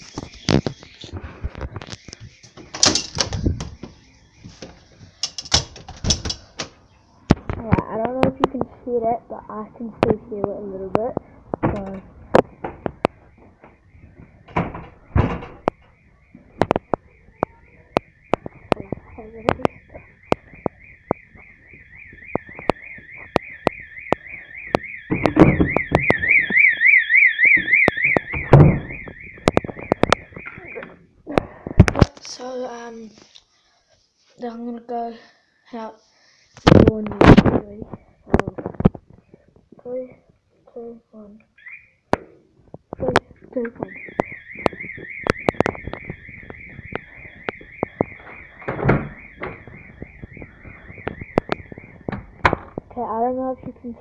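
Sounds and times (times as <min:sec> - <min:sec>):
clicks and knocks: 0:04.6 - 0:08.5
fire alarm warbling tone: 0:11.8 - 0:31.1, 0:41.6 - 0:42.0, 0:43.0 - 0:52.9
footsteps: 0:17.9 - 0:31.0, 0:42.6 - 0:54.0
loud thud: 0:48.6 - 0:49.7.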